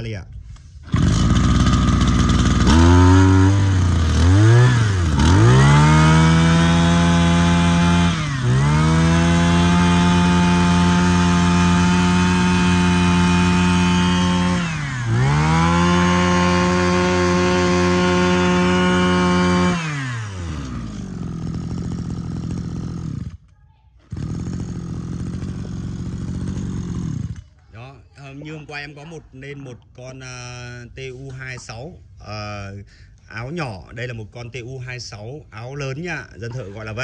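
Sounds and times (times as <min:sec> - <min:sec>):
brush cutter engine revving: 0:00.8 - 0:27.6.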